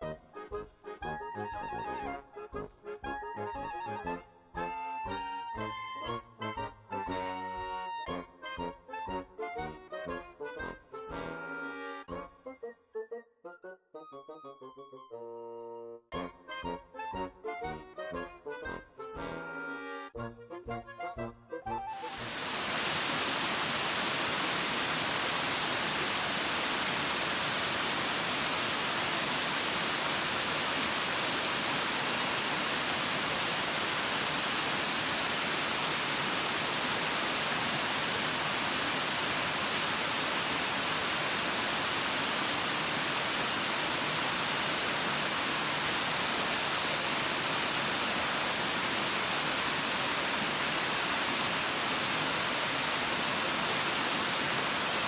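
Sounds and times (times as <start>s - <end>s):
waterfall rushing: 21.9s - 55.0s.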